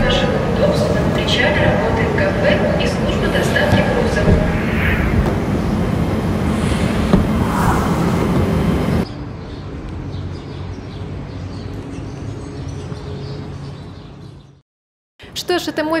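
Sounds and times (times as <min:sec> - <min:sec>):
city background noise: 0:00.0 - 0:14.6
low rumble: 0:03.4 - 0:09.1.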